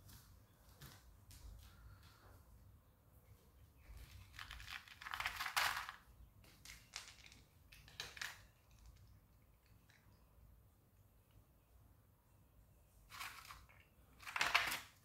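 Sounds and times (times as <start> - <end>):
cat crunching dry kibble: 4.0 - 10.2.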